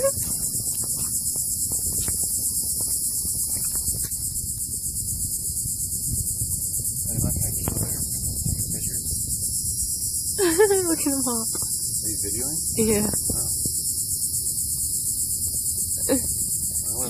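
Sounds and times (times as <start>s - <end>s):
insects trilling: 0.0s - 17.0s
low rumble: 3.4s - 13.8s.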